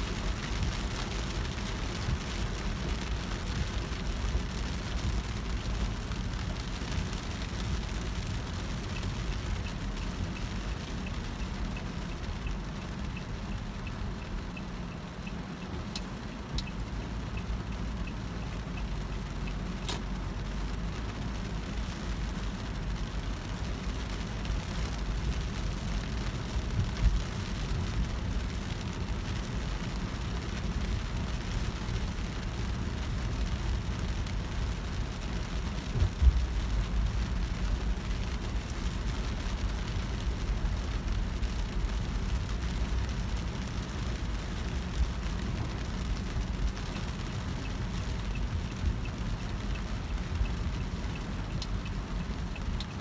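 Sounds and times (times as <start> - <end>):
car road and engine noise: 0.0 - 53.0
rain hissing on car glass: 0.0 - 53.0.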